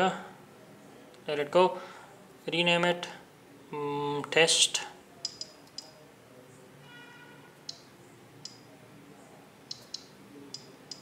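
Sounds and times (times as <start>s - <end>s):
on-screen keyboard tapping: 5.2s - 6.0s, 7.6s - 8.7s, 9.7s - 11.0s.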